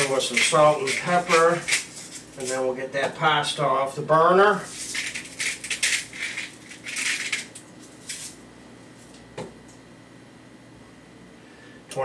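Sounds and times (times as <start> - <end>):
spice mill grinding: 0.0 - 2.6, 4.7 - 8.4.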